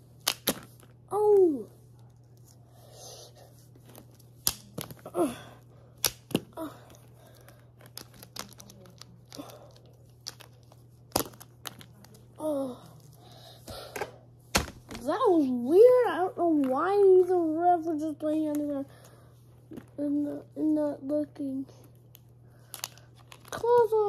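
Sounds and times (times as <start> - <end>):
plastic figures clacking: 6.0 - 12.2.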